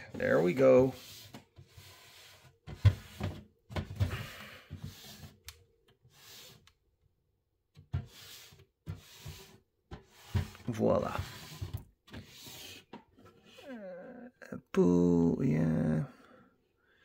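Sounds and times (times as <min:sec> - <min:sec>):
plastic rubbing: 0:07.8 - 0:13.8.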